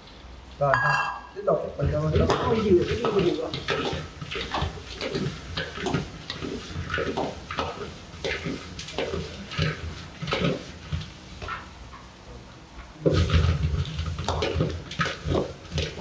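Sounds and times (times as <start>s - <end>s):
food sizzling in a pan: 0.6s - 16.0s
spatula scraping a pan: 2.2s - 11.8s, 13.1s - 16.0s.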